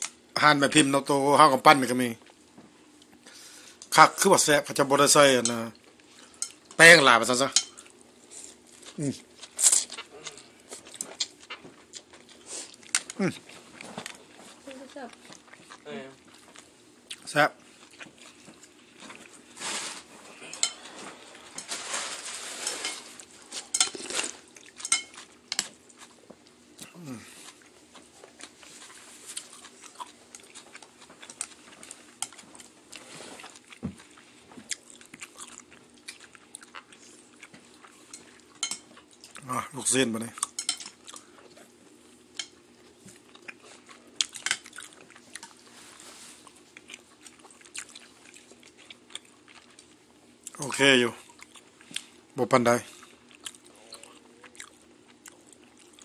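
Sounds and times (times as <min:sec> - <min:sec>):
quiet chewing: 0:07.7 - 0:19.6, 0:22.9 - 0:39.5, 0:40.3 - 0:50.6, 0:51.2 - 0:52.3, 0:52.9 - 0:56.0.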